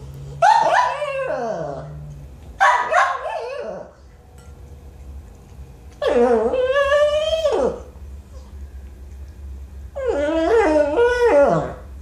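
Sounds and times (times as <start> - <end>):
dog whining bark-howls: 0.4 - 2.0, 2.6 - 4.0, 6.0 - 7.9, 10.0 - 11.9.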